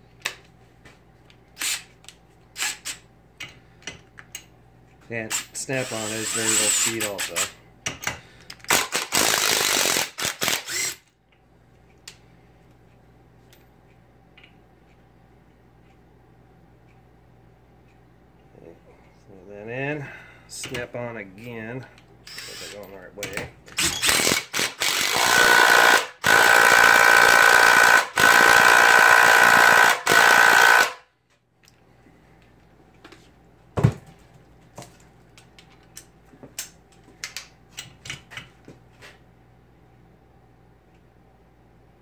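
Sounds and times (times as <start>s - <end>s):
impact wrench hammering: 23.8s - 31.0s.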